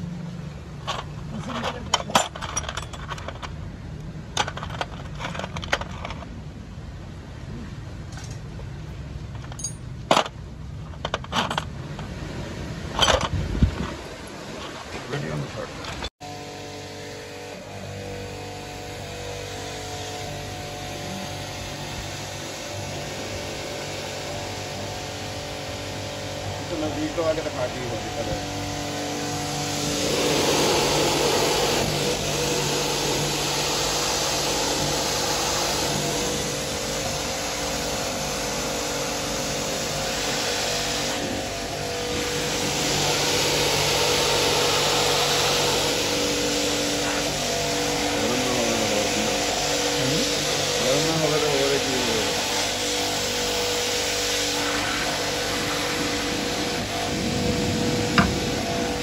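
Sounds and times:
motor hum: 15.6s - 59.0s
high-pressure spray hissing: 18.7s - 59.0s.

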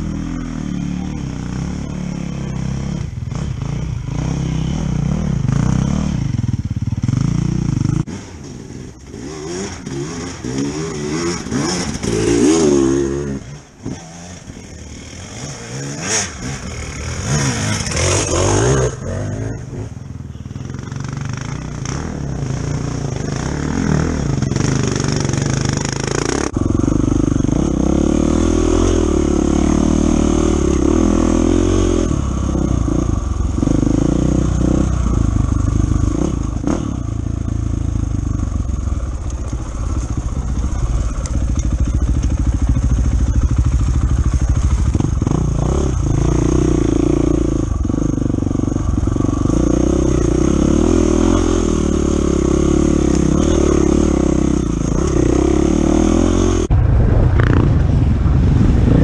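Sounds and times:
dirt bike revving up and down: 0.0s - 20.0s, 20.7s - 56.7s
dirt bike riding off under throttle: 0.0s - 59.0s
dirt bike engine idling: 32.1s - 55.8s.

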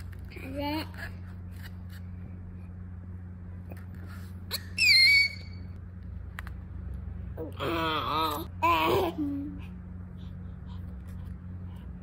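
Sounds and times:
low steady hum: 0.0s - 12.0s
baby squealing: 4.5s - 5.6s.

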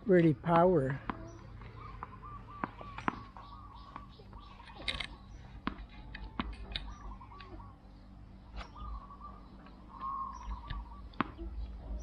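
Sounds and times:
bird calling: 0.7s - 12.0s
tennis ball bouncing on concrete: 0.9s - 4.5s, 5.4s - 7.0s, 9.6s - 12.0s.

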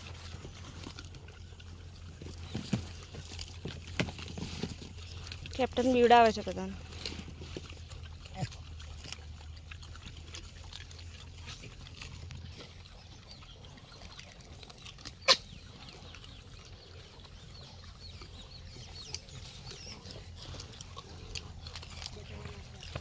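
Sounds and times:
monkeys rustling in cardboard boxes: 0.0s - 8.0s
low steady hum: 0.0s - 23.0s.

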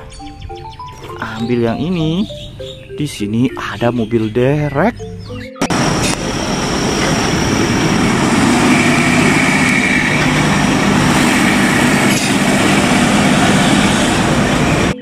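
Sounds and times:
heavy truck engines passing: 5.6s - 15.0s
tyre and road noise: 5.6s - 15.0s.

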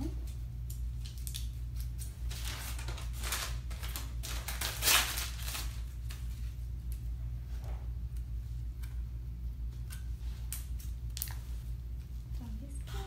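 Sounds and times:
steady low hum: 0.0s - 13.0s
paper plastic pouch crinkling: 1.1s - 6.3s.

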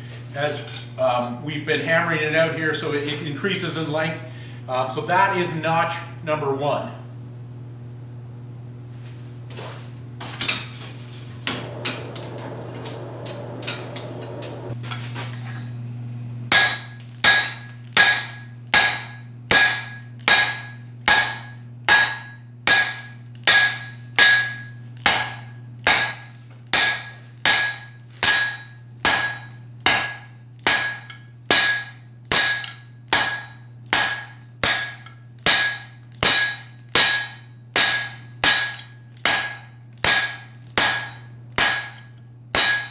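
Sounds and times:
hammer ringing on anvil: 16.5s - 42.9s.

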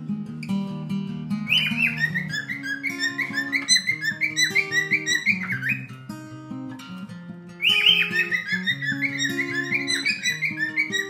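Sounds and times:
acoustic guitar music: 0.0s - 11.0s
cockatiel whistling: 1.5s - 6.1s, 7.6s - 11.0s.

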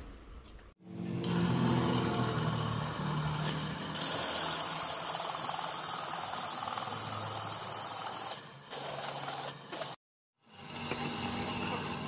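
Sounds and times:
drill motor hum: 1.0s - 10.0s
hole cutter cutting metal: 1.0s - 10.0s.

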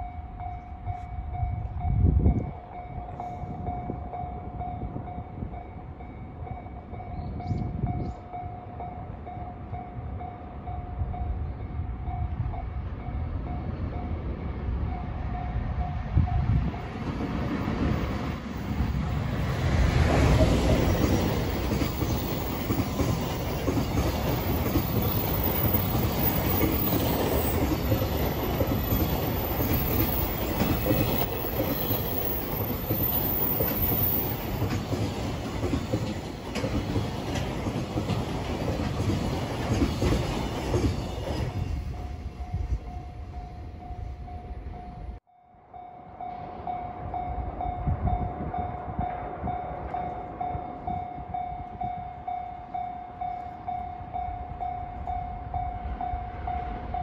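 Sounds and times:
train wheels clattering over rail joints: 19.1s - 41.8s.

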